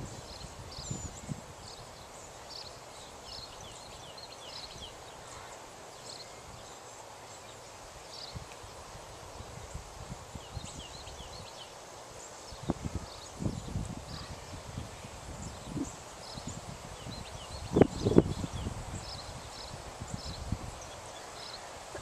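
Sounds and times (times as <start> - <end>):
small birds chirping: 0.0 - 22.0.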